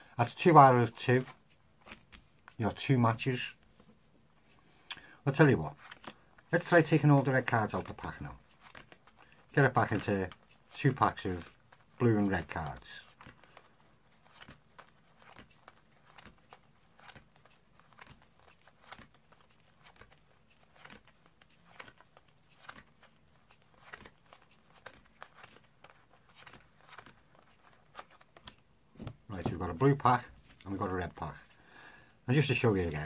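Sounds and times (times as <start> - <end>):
playing cards clicking and sliding: 0.4 - 2.6, 5.7 - 31.6.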